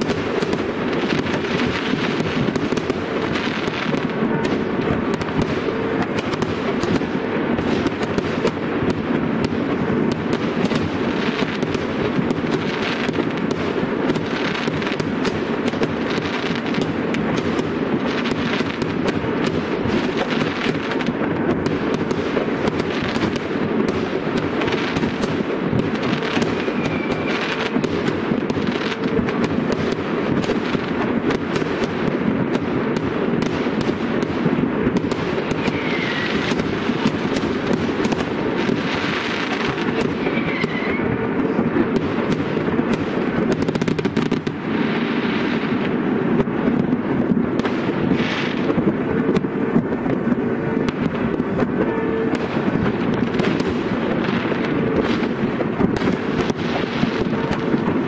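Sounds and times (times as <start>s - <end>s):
faint firework whistles: 0.0s - 45.9s, 47.6s - 58.0s
fireworks bangs and crackling: 0.0s - 58.0s.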